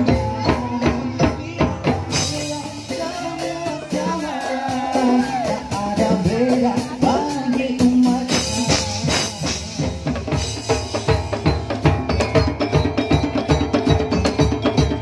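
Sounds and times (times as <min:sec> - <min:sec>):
fast drumming: 0:00.0 - 0:15.0.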